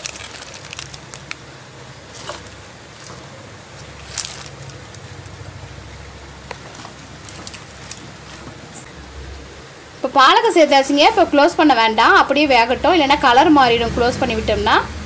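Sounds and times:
water boiling in a pan: 0.0 - 8.9.

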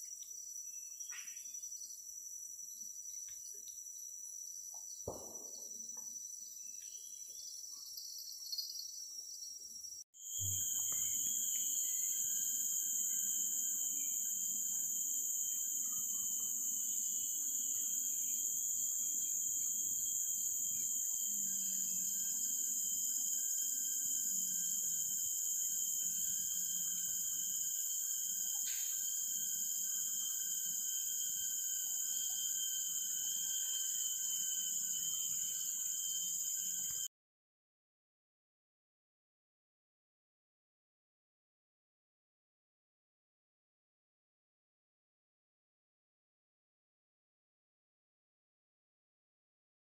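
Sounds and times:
insects chorus shrill tones: 0.0 - 37.1.

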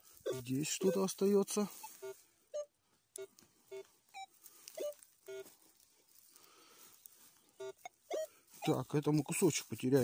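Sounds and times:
metal detector low beeps: 0.2 - 5.5, 7.6 - 8.8.

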